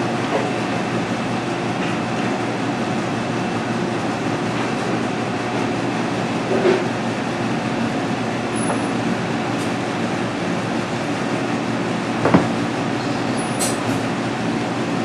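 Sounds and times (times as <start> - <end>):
rushing machine-like noise: 0.0 - 15.0
short knock: 12.2 - 12.6.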